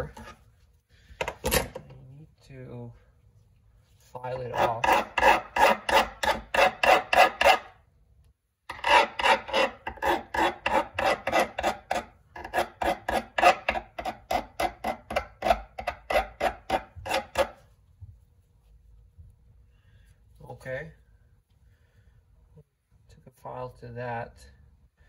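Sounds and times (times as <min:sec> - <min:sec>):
hand file rasping on metal: 0:04.2 - 0:07.8, 0:08.7 - 0:17.7.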